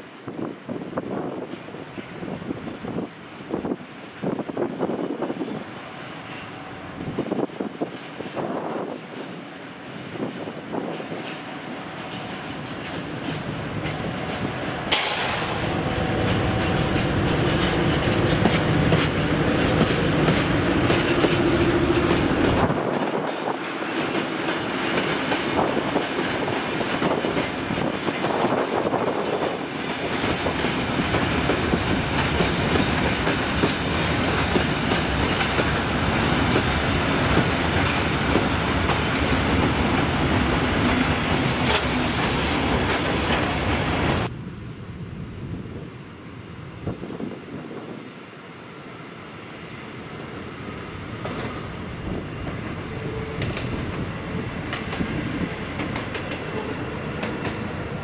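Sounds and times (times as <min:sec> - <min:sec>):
train wheels clicking over rail joints: 0:03.5 - 0:44.3, 0:51.1 - 0:58.0
diesel locomotive engine running: 0:11.7 - 0:28.7.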